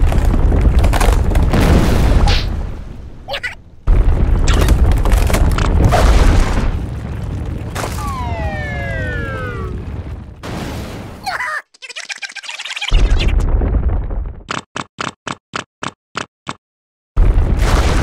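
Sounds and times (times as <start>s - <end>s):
deep rumbling crash: 0.0s - 11.2s, 13.0s - 14.5s.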